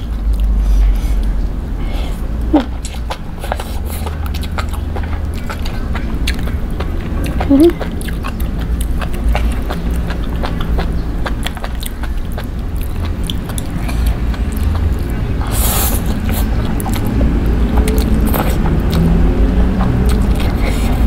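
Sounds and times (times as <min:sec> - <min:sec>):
wet chewing mouth sounds: 0:00.0 - 0:21.0
slurping noodles: 0:13.7 - 0:21.0.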